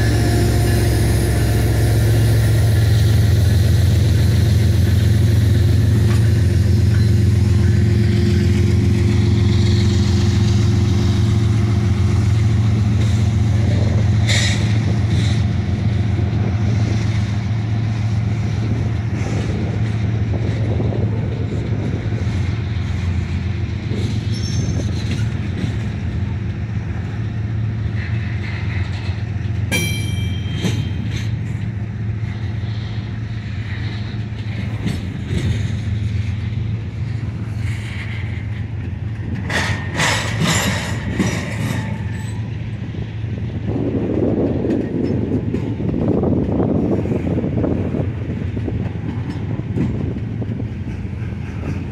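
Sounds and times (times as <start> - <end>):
high-pitched squeals: 0.0 - 13.1
diesel locomotive engine drone: 0.0 - 51.9
freight cars rumbling: 0.0 - 51.9.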